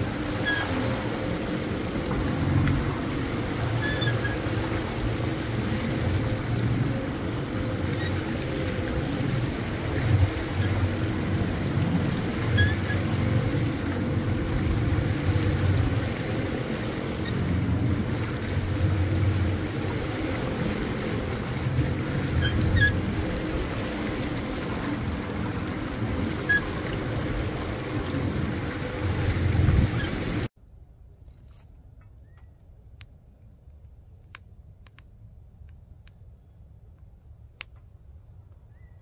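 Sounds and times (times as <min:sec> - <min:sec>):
outboard motor running: 0:00.0 - 0:30.5
water noise: 0:00.0 - 0:30.5
wind: 0:00.0 - 0:39.0.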